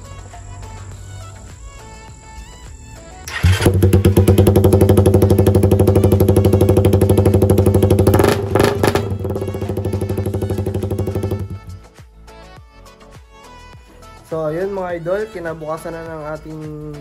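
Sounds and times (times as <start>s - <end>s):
motorcycle engine idling: 3.3s - 11.9s.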